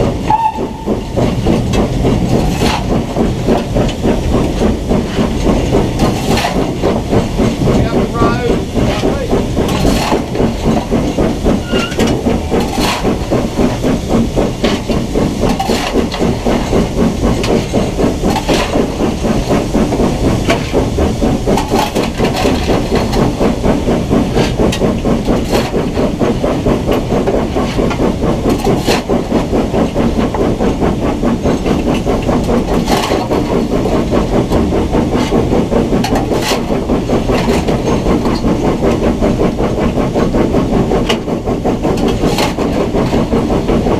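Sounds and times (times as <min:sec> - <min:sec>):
steam hissing: 0:00.0 - 0:43.9
steam locomotive exhaust beats: 0:00.0 - 0:43.9.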